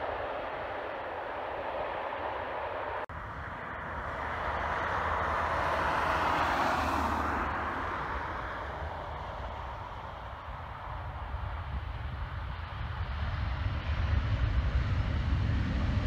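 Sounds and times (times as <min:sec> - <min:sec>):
jet airliner engines passing low: 0:00.0 - 0:16.0.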